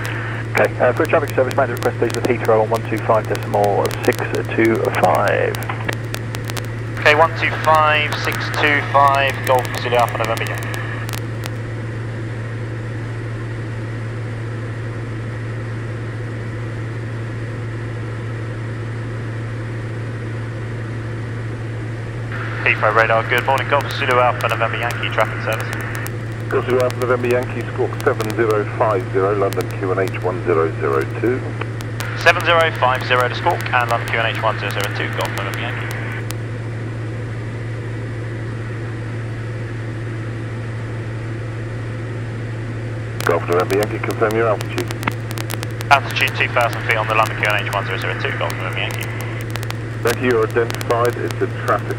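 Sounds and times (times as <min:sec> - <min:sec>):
aircraft engine droning in cabin: 0:00.0 - 0:05.9, 0:11.7 - 0:31.6.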